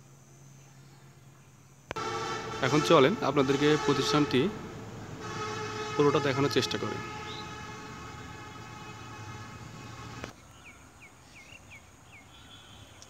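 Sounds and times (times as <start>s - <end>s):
droning hum with overtones: 0.6s - 10.3s
bird chirping: 7.0s - 13.0s.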